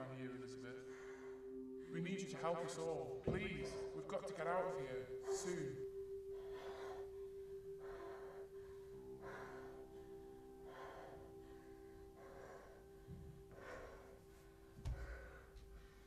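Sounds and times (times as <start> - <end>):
held drone note: 0.0 - 16.0
shaky breaths: 6.3 - 16.0.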